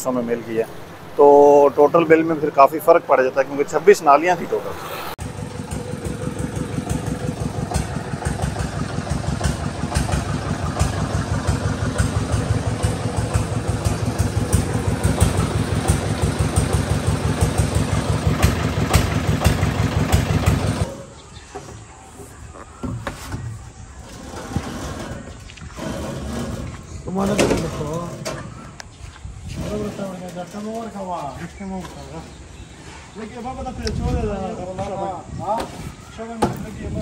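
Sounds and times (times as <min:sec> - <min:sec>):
engine running with pulsing beat: 0:03.5 - 0:21.0.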